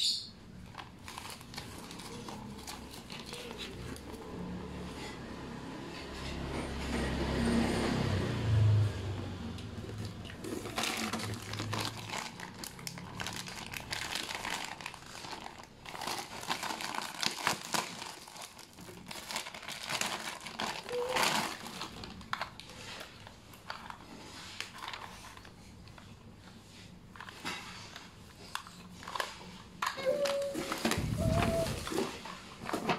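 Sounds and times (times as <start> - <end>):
plastic wrapping crinkling and tearing: 0.6 - 4.3, 9.8 - 26.0, 27.1 - 32.9.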